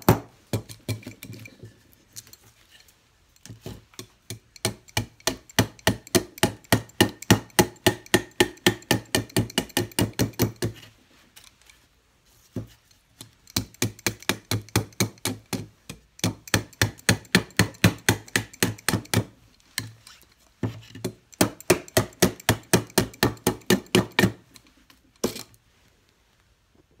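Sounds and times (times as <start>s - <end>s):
knife chopping wood: 13.6s - 19.3s, 20.6s - 24.4s.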